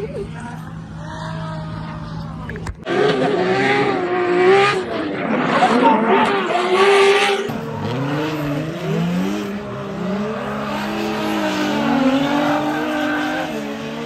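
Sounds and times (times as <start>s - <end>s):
car engine revving: 2.8s - 14.0s.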